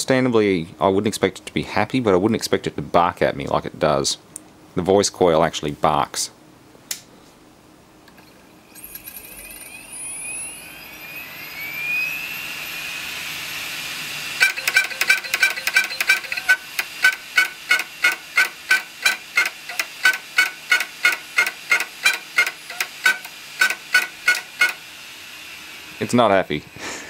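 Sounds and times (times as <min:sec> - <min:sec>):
hard drive whine spinning up: 0:08.1 - 0:27.0.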